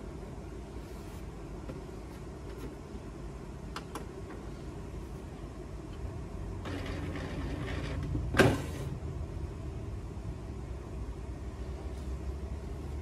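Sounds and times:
low steady hum: 0.0s - 13.0s
printer motor whirring: 6.6s - 8.8s.

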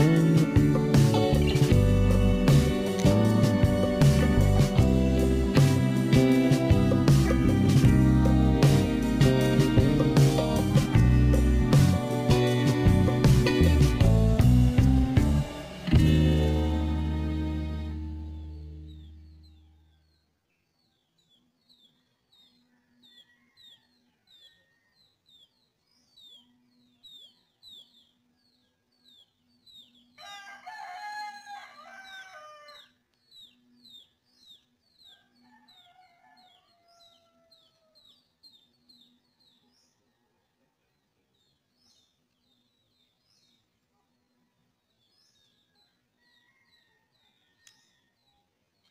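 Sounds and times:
small bird chirping: 18.3s - 30.2s, 32.7s - 40.2s
rooster crowing: 22.6s - 25.2s, 30.2s - 33.0s, 35.1s - 38.2s, 45.7s - 48.4s.

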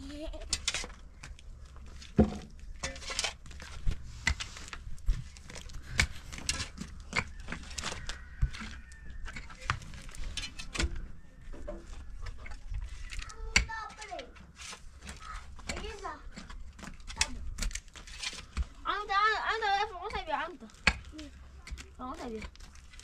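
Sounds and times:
earth scraping and rustling: 0.0s - 23.0s
digging tools striking soil: 2.1s - 11.1s, 19.5s - 23.0s.

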